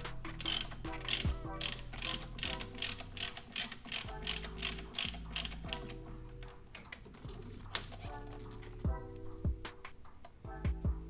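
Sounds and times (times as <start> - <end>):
ratchet wrench clicking: 0.0 - 7.0.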